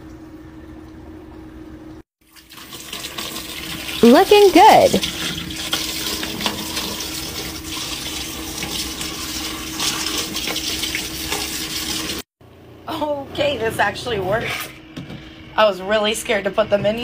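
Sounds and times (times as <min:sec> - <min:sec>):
water from hose splashing into tub: 0:02.2 - 0:12.2.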